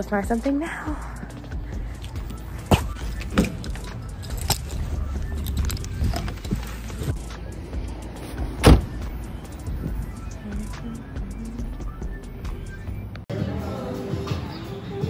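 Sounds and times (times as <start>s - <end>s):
heavy thump: 8.6s - 9.1s.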